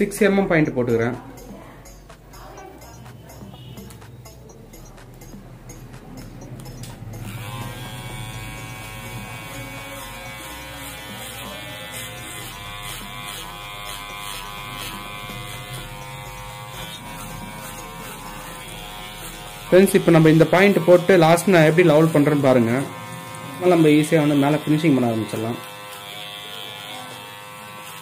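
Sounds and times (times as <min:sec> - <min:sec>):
electric hair clipper buzzing: 0:06.6 - 0:28.0.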